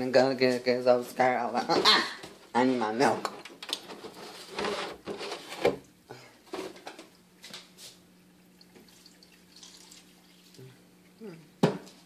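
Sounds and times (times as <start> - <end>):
knocks and rustles of handling: 1.6 - 5.8, 6.4 - 8.0.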